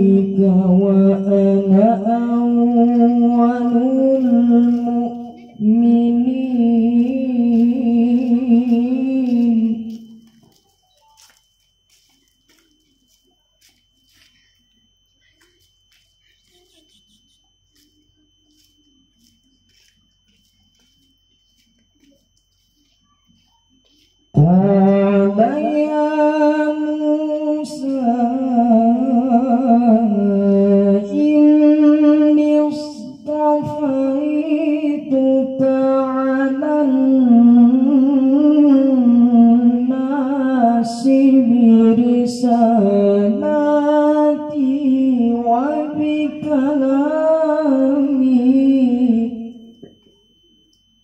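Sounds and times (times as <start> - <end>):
man reciting melodically: 0.0 - 10.2, 24.4 - 49.6.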